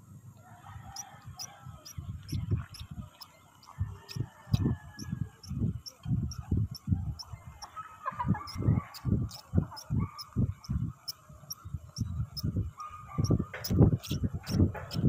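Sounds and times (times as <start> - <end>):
chickens clucking: 1.0 - 10.8
fishing reel ticking: 1.8 - 4.6, 5.4 - 6.9, 13.6 - 15.0.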